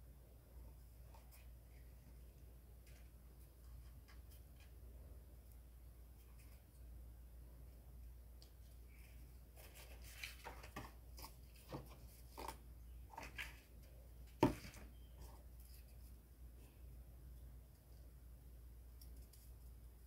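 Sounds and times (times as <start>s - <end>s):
faint low hum: 0.0s - 20.0s
cardboard rustling and tapping: 9.6s - 13.7s, 14.3s - 14.9s.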